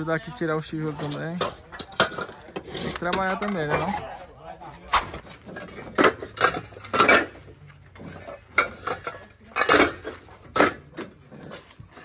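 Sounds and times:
ceramic bricks clinking: 5.2 - 12.0.

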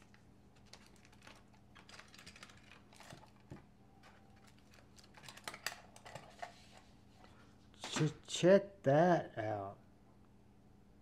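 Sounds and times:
plastic bag and paper rustling: 0.0 - 7.0.

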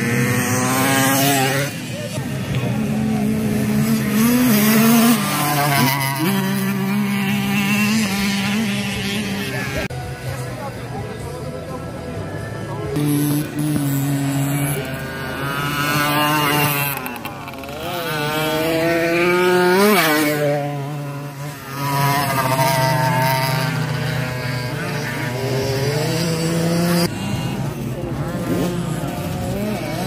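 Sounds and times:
racing motorcycle engines revving: 0.0 - 30.0.

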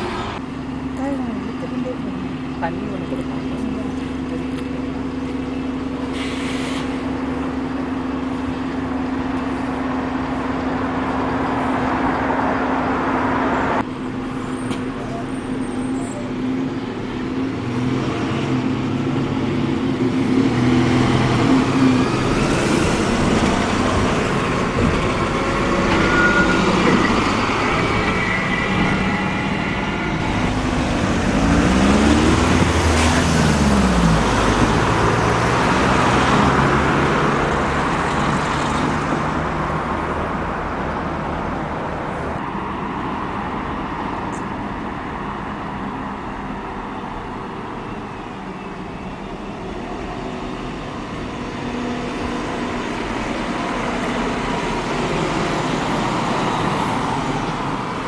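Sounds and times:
bus engines running: 0.0 - 58.0
diesel train passing: 0.0 - 58.0.

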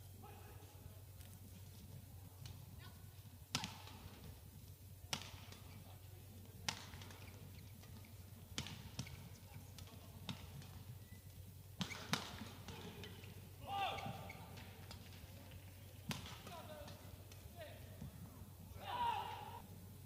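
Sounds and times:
rackets hitting shuttlecock: 3.5 - 4.4, 5.1 - 19.6.

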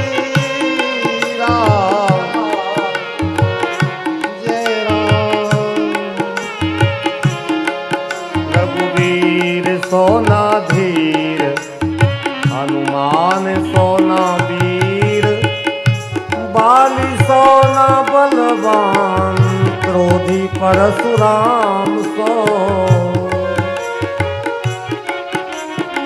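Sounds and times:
held drone: 0.0 - 9.9
gliding melody line: 0.0 - 26.0
hand drum beat: 0.0 - 26.0.

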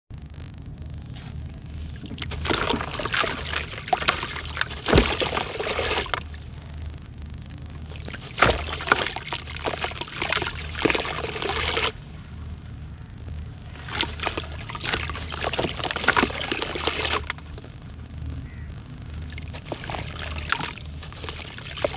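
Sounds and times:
sand crumbling into water: 1.1 - 6.5, 7.9 - 12.0, 13.8 - 17.7, 19.3 - 21.9.

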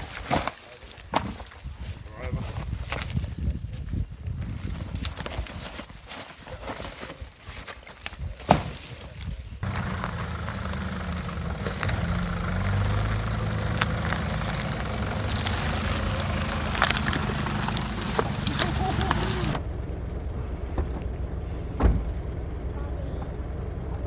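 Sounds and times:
log knocking and thudding: 1.1 - 1.6, 9.6 - 19.6
vehicle engine running at low revs: 9.6 - 24.0.

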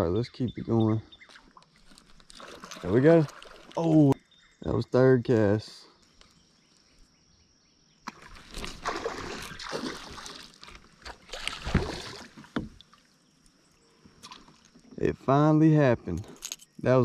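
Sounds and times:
fish splashing at water surface: 8.1 - 12.6.

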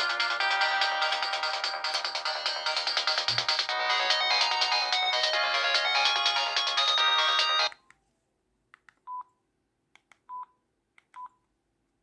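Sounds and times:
polyphonic phone ringtone: 0.0 - 7.8.

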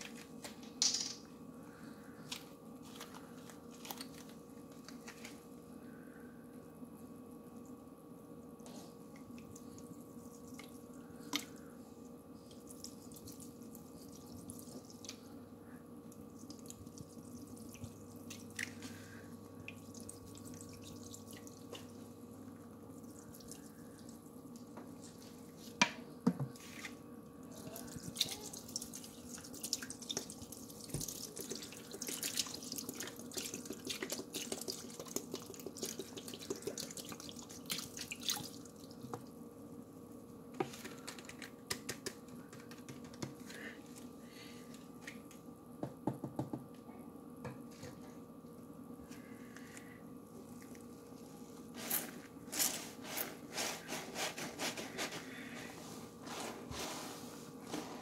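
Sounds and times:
faint steady hum: 0.0 - 58.0
water dripping from sponges: 27.8 - 39.0.

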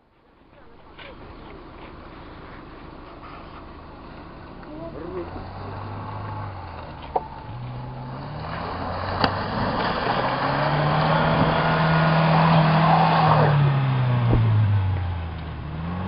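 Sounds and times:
wheels churning snow: 0.2 - 14.3
truck engine revving: 4.9 - 16.0.

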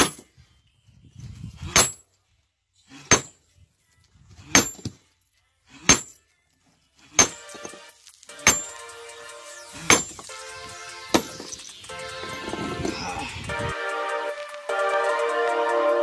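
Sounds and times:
sledgehammer striking stone: 0.0 - 0.2, 1.7 - 2.0, 3.0 - 3.4, 4.4 - 5.0, 5.8 - 6.2, 7.1 - 7.8, 8.4 - 8.8, 9.8 - 10.2, 11.1 - 11.6
background music: 7.1 - 16.0.

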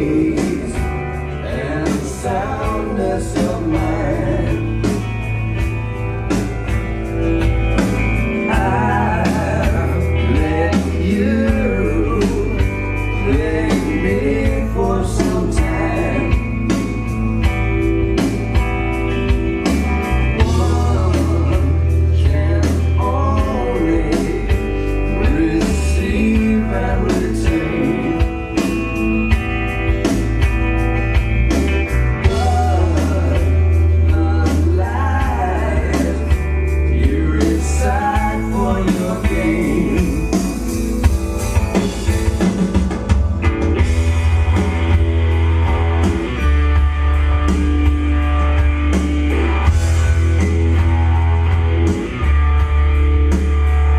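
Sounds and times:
rock song over loudspeakers: 0.0 - 53.9.

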